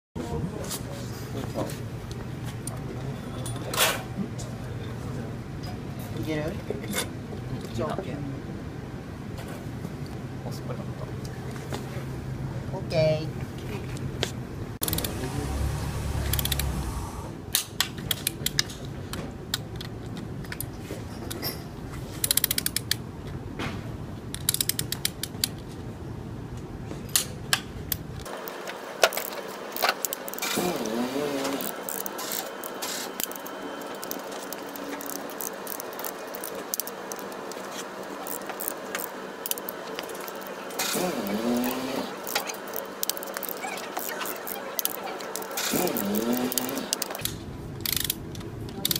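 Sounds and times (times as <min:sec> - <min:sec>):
ratchet wrench clicking: 0:14.8 - 0:15.2, 0:16.2 - 0:16.7, 0:22.2 - 0:23.0, 0:24.3 - 0:25.6, 0:29.1 - 0:37.4, 0:38.2 - 0:48.2.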